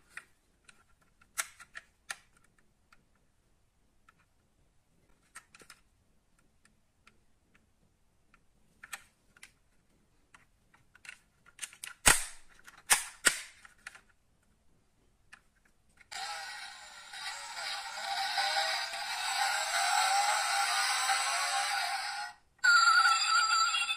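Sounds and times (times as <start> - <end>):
toy car parts clicking: 16.0 - 22.3
music: 16.3 - 22.4.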